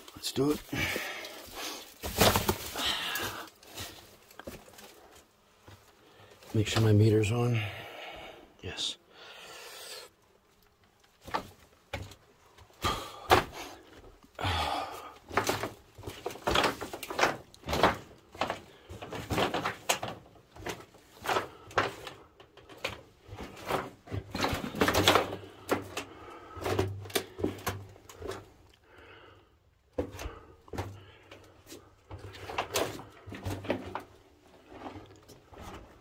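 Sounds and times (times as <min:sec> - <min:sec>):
pipes clattering underfoot: 0:00.0 - 0:07.1, 0:10.7 - 0:14.2, 0:15.0 - 0:29.2, 0:29.8 - 0:36.0
footsteps on loose pipes: 0:11.0 - 0:29.1, 0:29.9 - 0:36.0.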